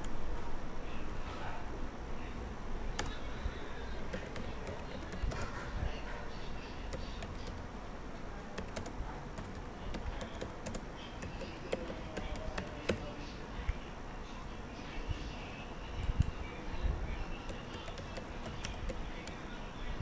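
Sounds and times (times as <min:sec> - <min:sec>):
typing on keyboard: 0:03.0 - 0:03.2, 0:04.0 - 0:05.6, 0:06.8 - 0:07.6, 0:08.5 - 0:13.1, 0:17.4 - 0:19.4.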